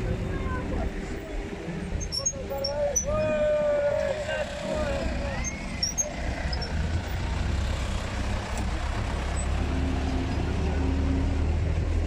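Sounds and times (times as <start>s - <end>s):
vehicle engines rumbling: 0.0s - 12.0s.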